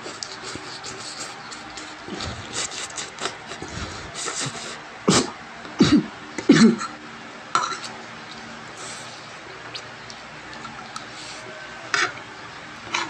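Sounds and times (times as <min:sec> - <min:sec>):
person coughing: 0:03.6 - 0:07.0
fork scraping a plate: 0:10.9 - 0:12.2.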